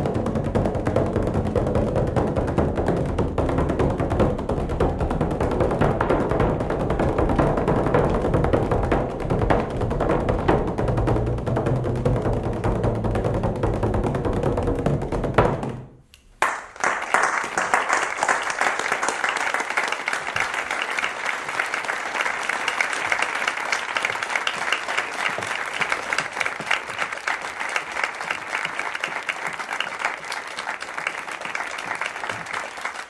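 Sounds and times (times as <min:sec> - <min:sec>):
crowd applauding: 0:16.4 - 0:33.0.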